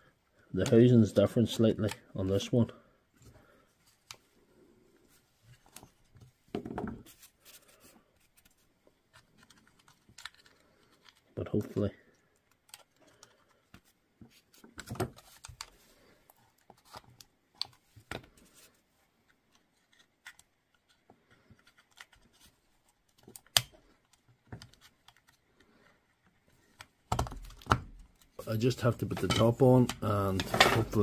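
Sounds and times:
plastic parts clicking and tapping: 12.4s - 15.8s, 23.0s - 28.4s, 29.0s - 31.0s.

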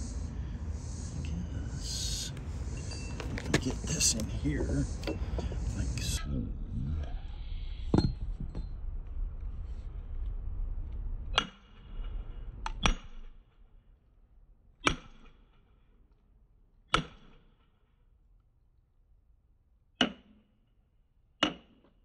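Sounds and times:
sledgehammer striking steel wedges: 14.8s - 15.4s, 16.9s - 17.5s, 20.0s - 20.5s.

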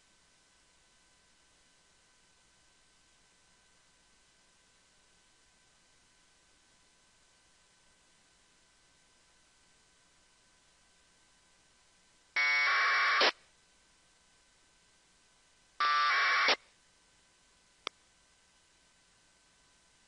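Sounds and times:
faint steady hiss: 0.0s - 20.0s
data tone bursts: 12.4s - 13.4s, 15.8s - 16.6s.

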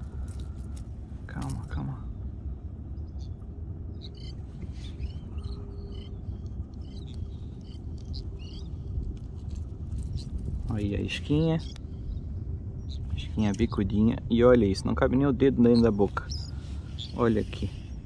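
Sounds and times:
sea rumble: 1.5s - 18.0s
faint bird chirps: 2.8s - 10.4s, 11.1s - 14.2s, 15.4s - 18.0s.

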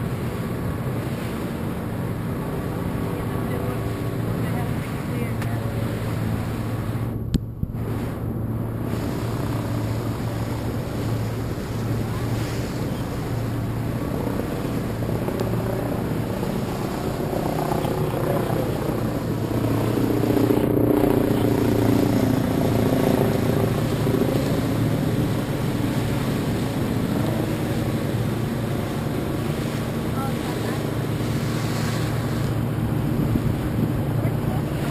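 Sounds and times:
motorboat engine running: 0.0s - 34.9s
wind and water rushing: 0.0s - 34.9s.

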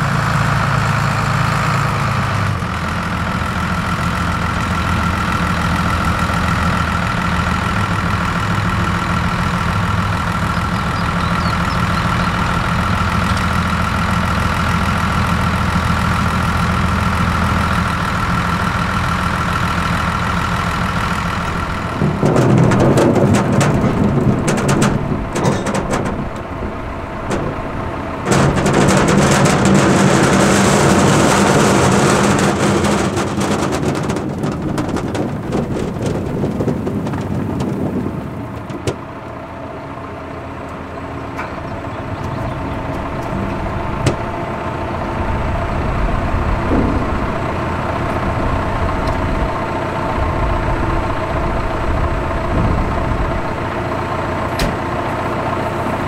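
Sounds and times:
tractor engine running: 0.0s - 56.0s
mechanical rattling: 21.1s - 39.0s, 41.3s - 53.8s.

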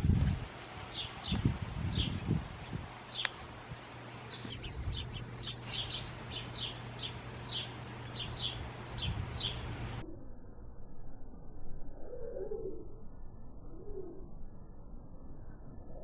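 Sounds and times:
low steady hum: 0.0s - 16.0s
sparrows chirping: 0.1s - 10.0s.

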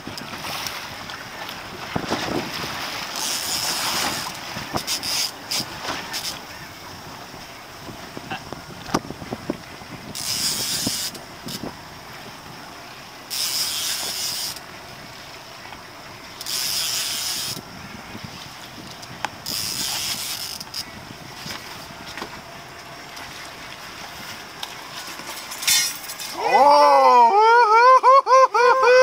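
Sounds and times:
fishing reel cranking: 3.1s - 6.4s, 10.1s - 11.6s, 13.3s - 14.6s, 16.4s - 17.6s, 19.4s - 20.9s
person shouting: 26.4s - 29.0s.

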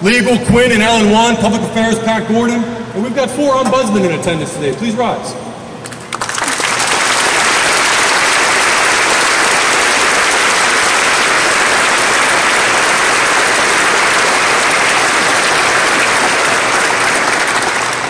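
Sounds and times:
audience applauding: 5.8s - 18.0s.

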